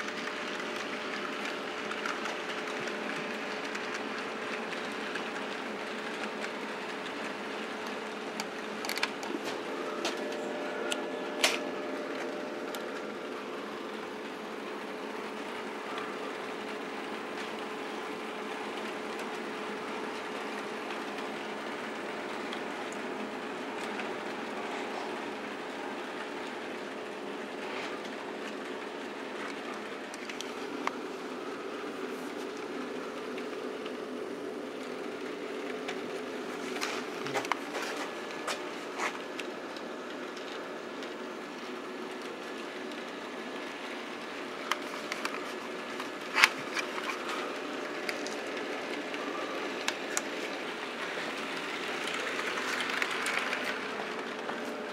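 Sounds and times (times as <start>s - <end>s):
model train wheels ticking on track: 0.0s - 9.3s, 39.2s - 54.5s
wheel and rail noise: 0.0s - 54.9s.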